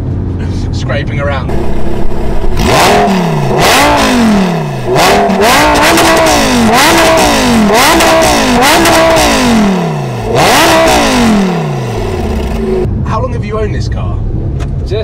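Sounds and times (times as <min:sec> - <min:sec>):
car engine revving: 0:01.3 - 0:12.9.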